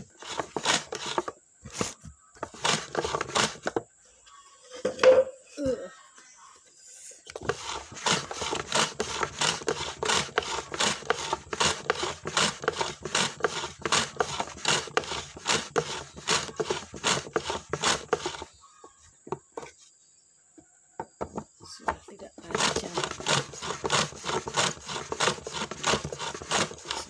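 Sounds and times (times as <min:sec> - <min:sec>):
slicer scraping strokes: 0:00.0 - 0:03.8, 0:07.3 - 0:18.5, 0:22.4 - 0:27.0.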